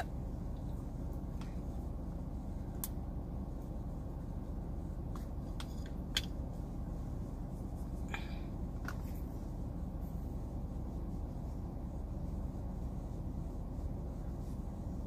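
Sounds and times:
car cabin low rumble: 0.0 - 15.0
makeup brush scratching: 8.8 - 15.0.

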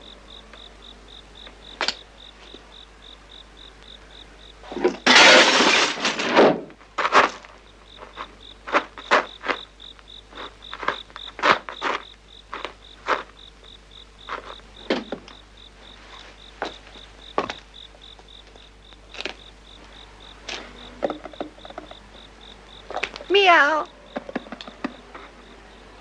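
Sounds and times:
cricket chirping: 0.0 - 26.0
knocks and clatters: 4.7 - 7.5, 21.0 - 22.0, 24.1 - 25.3.

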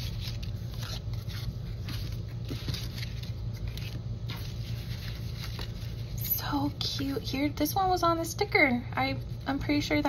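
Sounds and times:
paper pieces rustling and scraping: 0.0 - 6.2.

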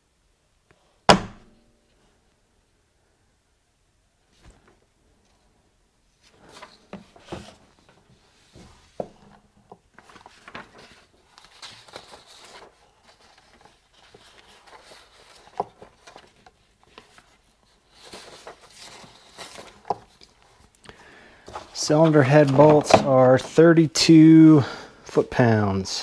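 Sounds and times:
sharp knock: 1.1 - 1.6.

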